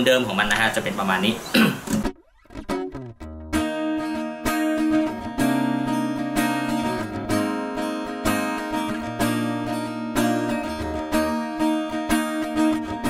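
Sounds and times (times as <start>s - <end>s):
acoustic guitar strummed chords: 1.6s - 13.0s.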